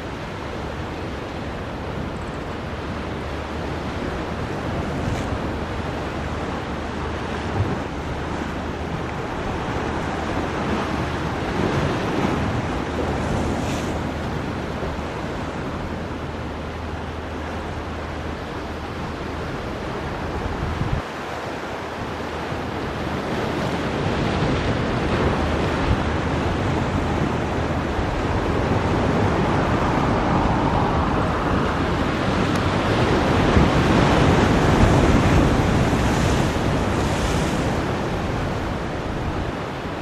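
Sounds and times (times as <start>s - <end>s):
jet engines rushing: 27.8s - 34.1s.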